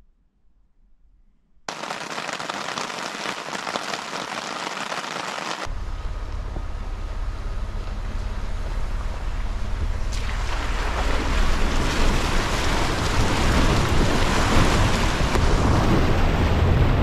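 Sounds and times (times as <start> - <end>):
rain pattering on a tarp: 1.7 - 5.7, 10.2 - 16.4
pickup truck rumbling: 5.7 - 17.0
wind noise: 9.8 - 17.0.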